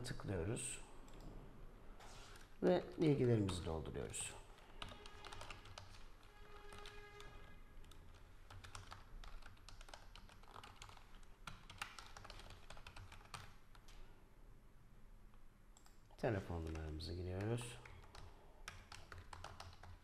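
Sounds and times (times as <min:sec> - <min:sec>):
computer keyboard typing: 0:04.4 - 0:14.0, 0:15.8 - 0:20.0.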